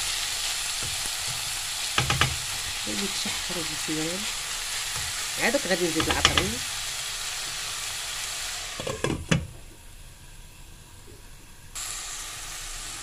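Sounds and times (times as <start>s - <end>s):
food sizzling in a pan: 0.0s - 13.0s
glass lid knocking on pan: 2.0s - 2.4s.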